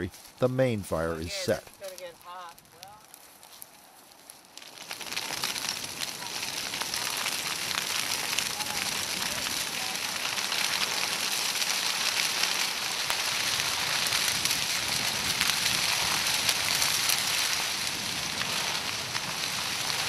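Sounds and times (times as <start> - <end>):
grass fire crackling: 0.0 - 20.0.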